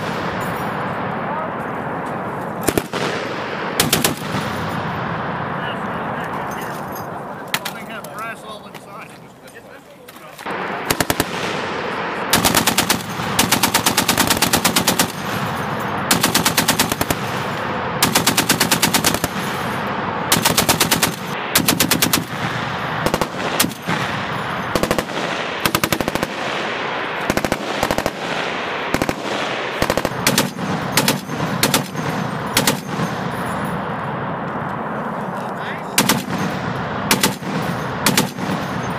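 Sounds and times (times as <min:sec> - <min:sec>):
heavy machine gun bursts: 0:10.5 - 0:33.6, 0:36.0 - 0:38.9.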